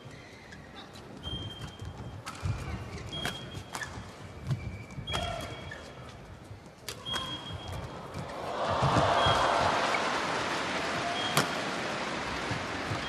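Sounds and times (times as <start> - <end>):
shoes squeaking on court floor: 0.0 - 8.4
racket striking shuttlecock: 11.2 - 11.8.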